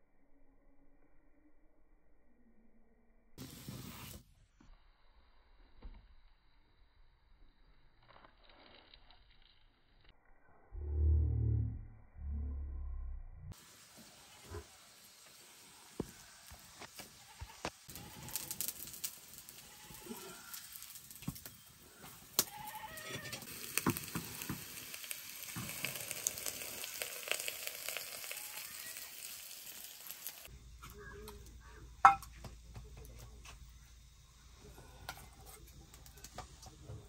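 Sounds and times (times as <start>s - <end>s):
wood fire crackling: 3.4s - 4.2s, 13.6s - 37.0s
flatbread sizzling on griddle: 3.4s - 10.2s, 13.5s - 37.0s.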